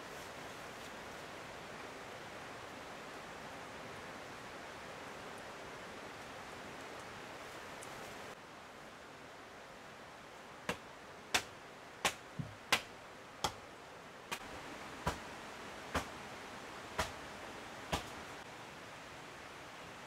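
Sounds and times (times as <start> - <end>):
faint hiss: 0.0 - 20.0.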